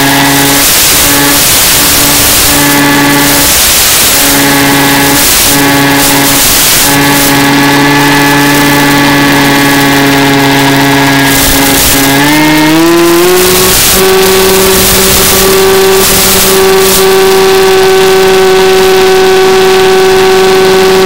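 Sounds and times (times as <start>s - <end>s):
electric motor and propeller hum: 0.0s - 21.0s
hiss: 0.1s - 7.5s, 11.3s - 17.4s.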